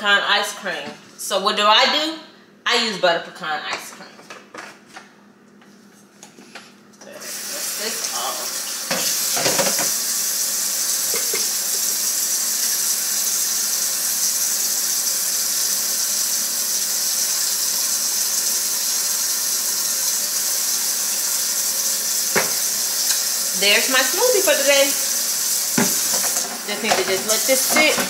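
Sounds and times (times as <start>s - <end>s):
faucet running water: 7.1s - 28.0s.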